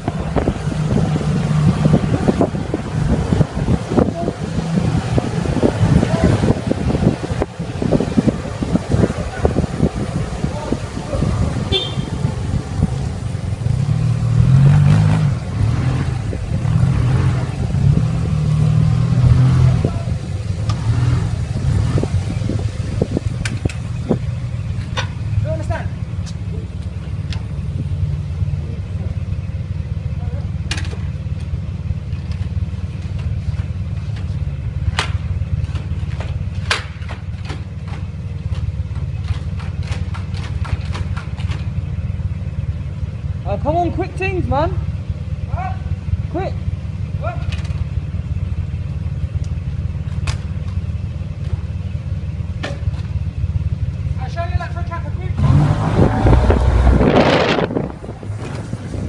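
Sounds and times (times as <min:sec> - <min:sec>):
motorcycle engine accelerating: 0:00.0 - 0:36.8, 0:38.0 - 0:59.0
rumbling road noise: 0:00.0 - 0:59.0
sharp clicks and knocks: 0:23.4 - 0:23.9, 0:24.7 - 0:25.3, 0:30.6 - 0:41.9, 0:47.4 - 0:48.0, 0:49.4 - 0:51.6, 0:52.6 - 0:53.2.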